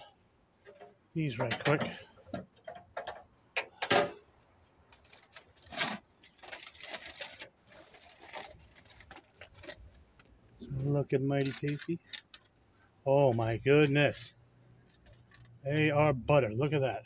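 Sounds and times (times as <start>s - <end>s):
aluminium foil crinkling: 4.9s - 10.3s, 11.4s - 12.5s.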